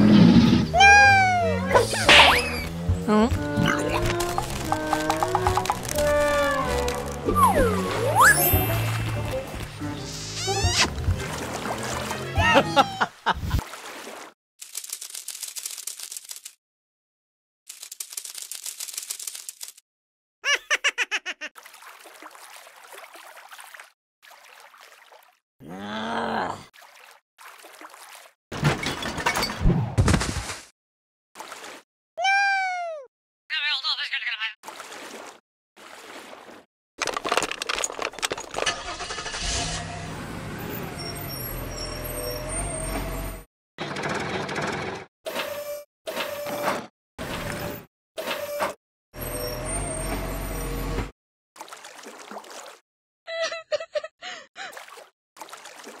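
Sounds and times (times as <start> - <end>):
bubbly bloops falling in pitch: 3.2 - 5.9, 7.3 - 8.7.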